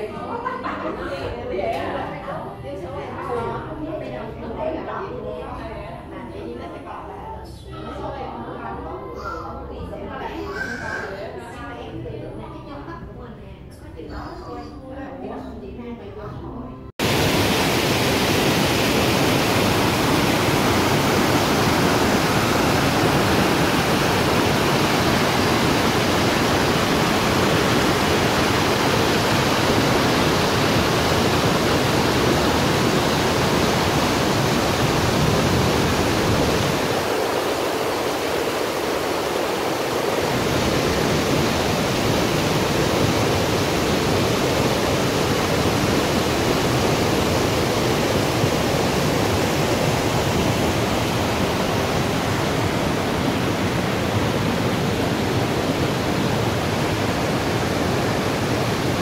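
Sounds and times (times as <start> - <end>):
waterfall rushing: 17.0 - 59.0.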